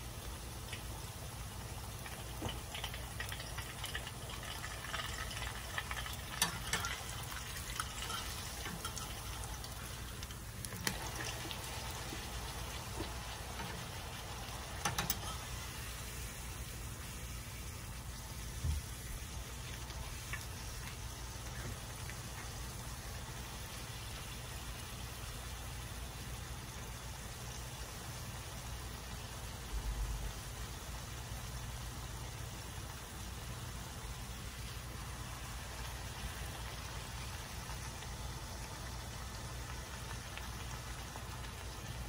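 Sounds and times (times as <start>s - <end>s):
tortilla sizzling in oil: 0.0s - 42.0s
metal spatula clicking on pan: 6.3s - 7.1s, 7.8s - 9.3s, 14.8s - 15.5s.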